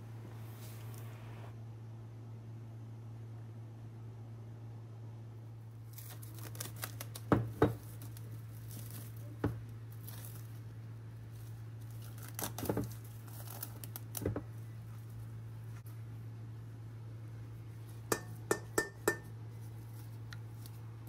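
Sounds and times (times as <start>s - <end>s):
low steady hum: 0.0s - 21.0s
plastic film crinkling and tearing: 5.8s - 15.3s.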